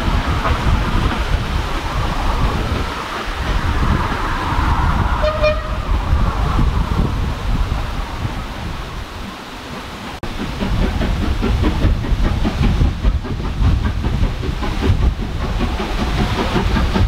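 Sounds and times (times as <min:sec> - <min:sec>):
train rumble: 0:00.0 - 0:17.0
steam whistle toot: 0:05.2 - 0:05.9.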